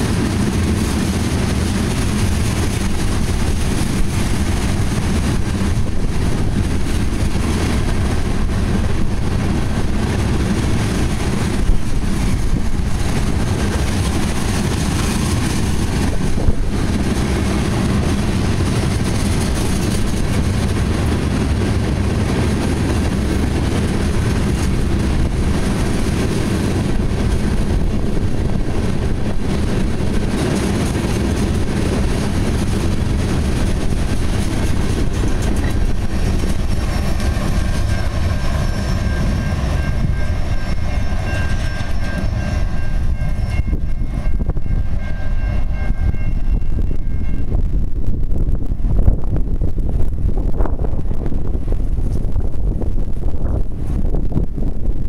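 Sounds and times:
freight train wheels rumbling: 0.0 - 55.0
crossing bell ringing: 35.7 - 47.7.

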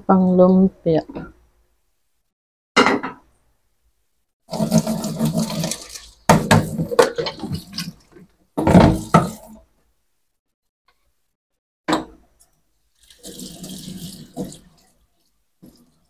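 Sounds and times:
tap water splashing into sink: 4.5 - 9.5, 13.0 - 14.9
colander knocking against sink: 6.3 - 7.5, 8.6 - 9.4.

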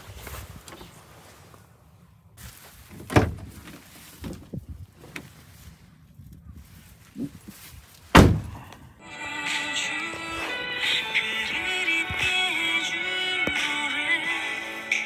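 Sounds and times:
knocks and thumps in truck cab: 2.9 - 4.5, 8.1 - 8.6
background music: 9.0 - 15.0.

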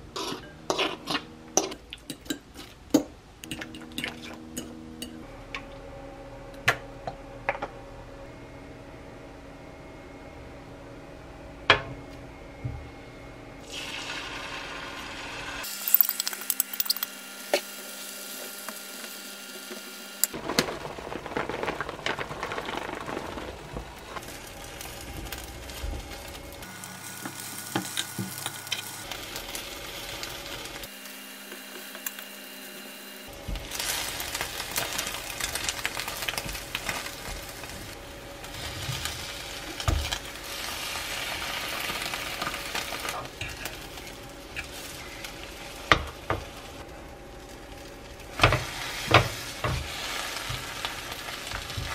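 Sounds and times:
fork and spatula scraping: 0.2 - 2.4
egg sizzling in a pan: 13.6 - 51.9.

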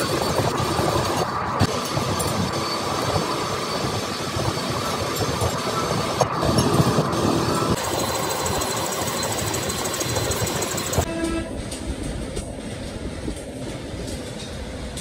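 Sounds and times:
metal lathe machining steel: 7.8 - 11.1.

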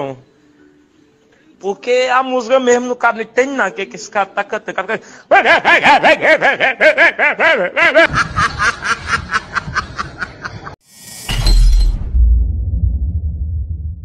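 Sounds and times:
man laughing loudly: 5.3 - 10.8
low hum: 11.1 - 14.0.

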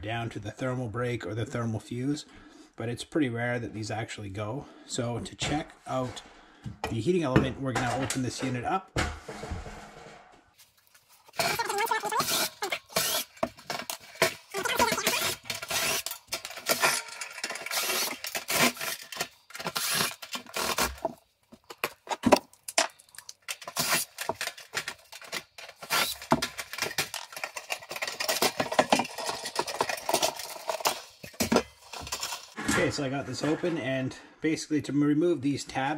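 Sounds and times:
metallic clinks and scrapes: 22.8 - 32.6.

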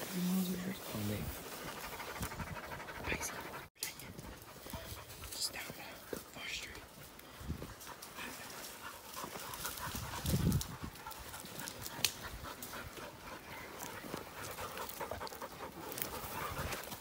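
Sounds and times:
heavy panting: 1.4 - 3.7.

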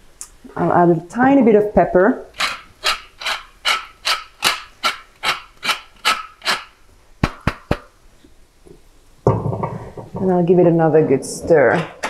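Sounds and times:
pepper mill grinding: 2.3 - 6.8
sharp knocks: 7.2 - 7.9.

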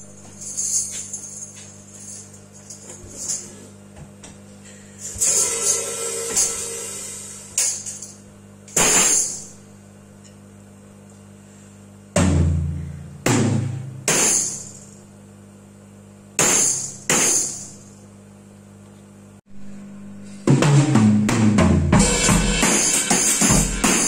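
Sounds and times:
tambourine jingling: 0.0 - 3.6
drum kit hits: 5.2 - 8.1, 12.1 - 14.8, 20.4 - 24.0.

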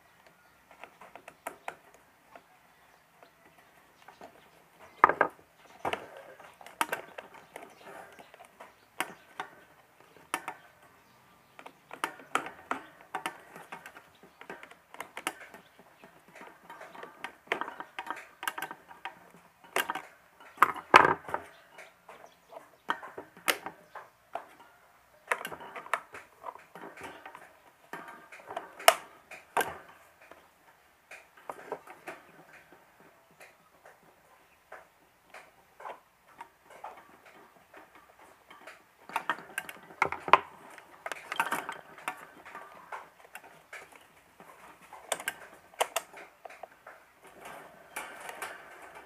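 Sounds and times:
plastic clicks and knocks: 4.0 - 10.8, 11.5 - 22.2, 25.3 - 30.5, 34.7 - 49.0.

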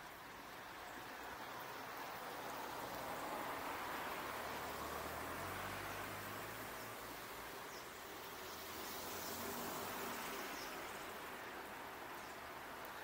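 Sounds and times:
steady hiss: 0.0 - 13.0
passing car hum: 2.2 - 11.8.

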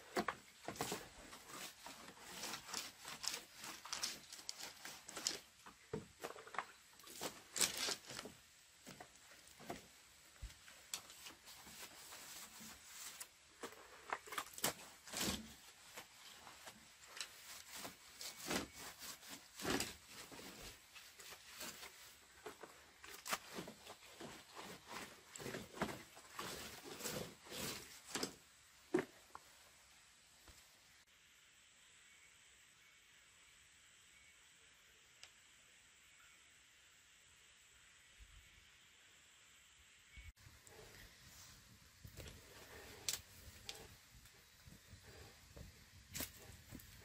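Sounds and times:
faint high-pitched tone: 31.4 - 40.4.

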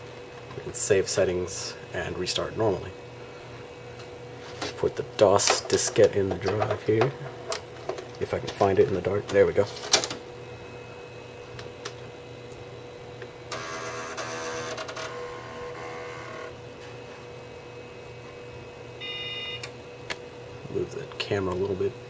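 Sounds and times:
computer humming: 10.2 - 22.0.

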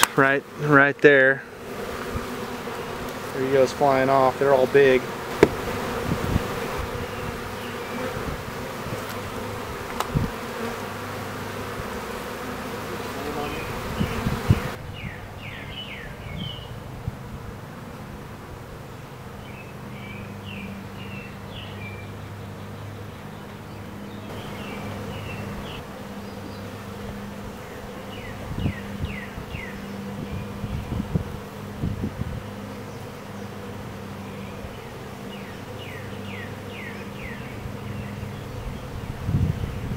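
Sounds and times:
honey bees buzzing: 0.0 - 39.9
low thumps: 5.3 - 6.5.

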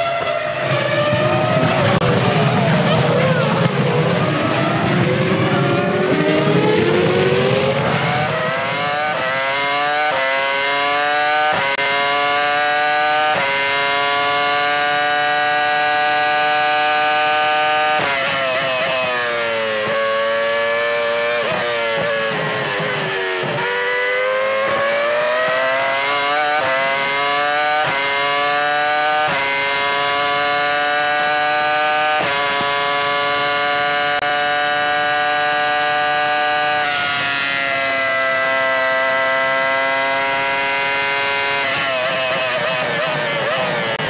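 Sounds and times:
racing car engine screaming: 0.0 - 10.7.

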